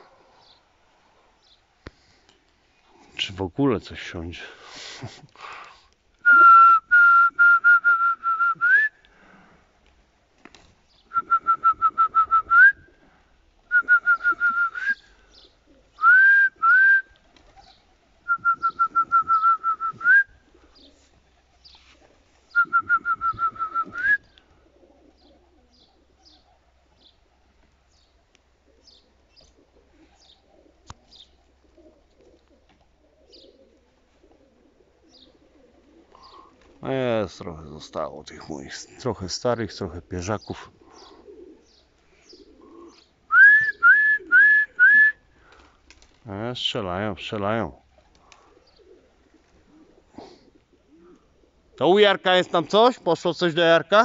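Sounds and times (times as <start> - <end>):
faint bird chirps: 25.0 - 27.3, 27.9 - 31.4, 33.2 - 33.8, 35.0 - 36.6, 40.4 - 43.8, 48.6 - 49.0.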